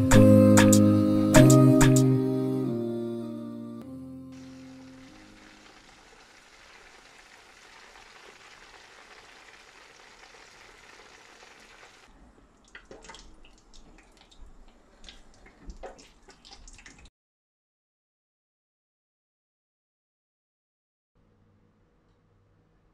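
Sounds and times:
deep-frying sizzle in oil: 0:04.4 - 0:12.1.

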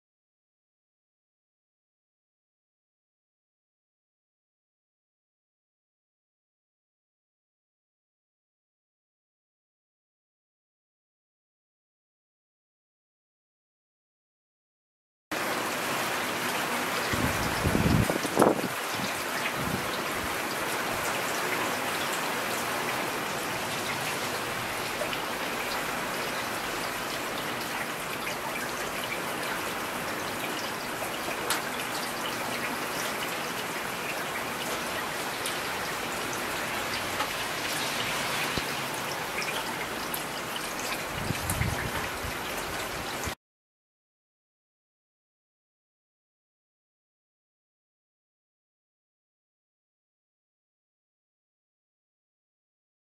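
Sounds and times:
heavy rain falling: 0:15.4 - 0:43.4.

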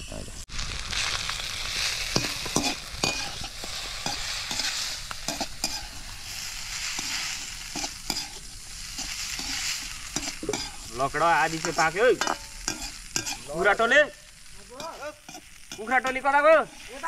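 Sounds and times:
food sizzling in a pan: 0:00.0 - 0:17.0
utensil scraping a pan: 0:02.1 - 0:13.5.

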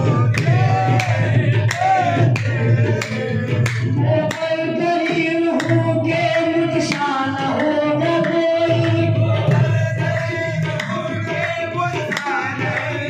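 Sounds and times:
tabla strikes: 0:00.0 - 0:13.0
voices singing: 0:00.0 - 0:13.0.

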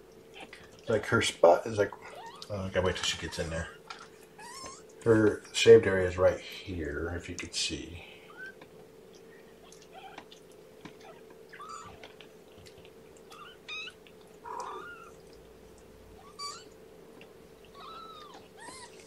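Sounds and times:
faint steady hum: 0:00.0 - 0:19.0
kittens mewing: 0:02.0 - 0:05.0, 0:08.2 - 0:08.7, 0:09.6 - 0:12.2, 0:13.2 - 0:15.4, 0:16.1 - 0:16.8, 0:17.6 - 0:19.0.

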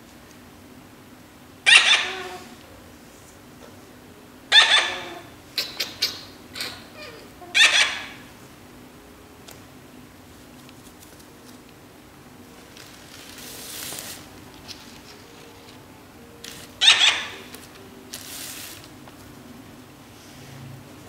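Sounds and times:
faint room hum: 0:00.0 - 0:21.0
rustling handling noise: 0:10.2 - 0:16.8, 0:17.4 - 0:19.5.

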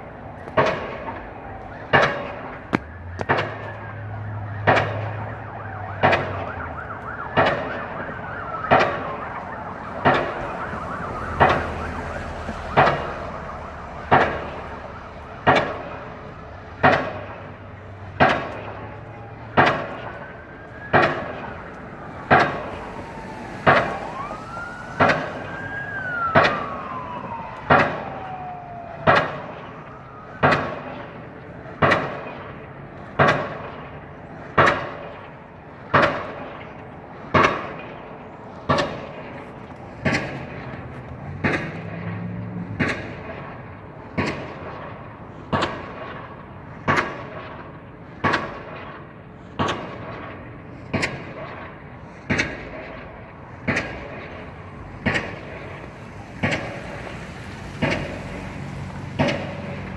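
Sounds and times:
siren wailing: 0:00.0 - 0:52.0
pile driver hammer pounding: 0:00.4 - 0:01.2, 0:01.8 - 0:03.8, 0:04.6 - 0:06.5, 0:07.1 - 0:07.9, 0:08.6 - 0:09.2, 0:09.9 - 0:10.6, 0:12.7 - 0:13.3, 0:14.0 - 0:21.6, 0:22.2 - 0:24.2, 0:30.4 - 0:59.9.

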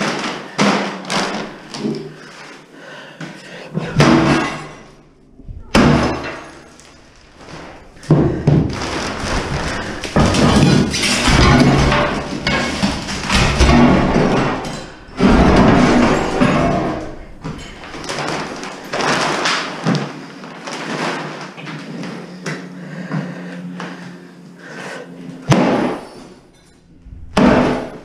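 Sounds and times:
enamel shards clattering: 0:05.7 - 0:19.8.

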